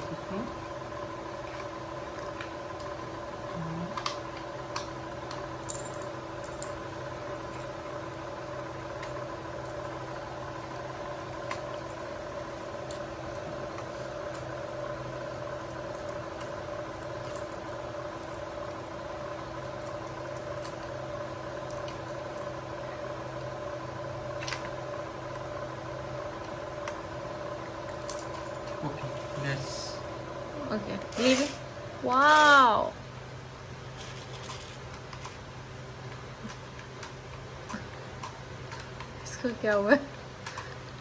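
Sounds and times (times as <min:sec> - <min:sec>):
steady hum: 0:00.0 - 0:41.0.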